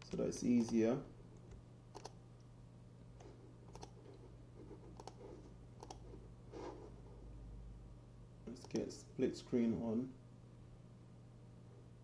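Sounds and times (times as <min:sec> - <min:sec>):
low steady hum: 0:00.0 - 0:12.0
sharp computer clicks: 0:00.1 - 0:00.9, 0:01.9 - 0:02.2, 0:03.7 - 0:04.0, 0:05.0 - 0:05.2, 0:05.8 - 0:06.0, 0:08.5 - 0:08.9.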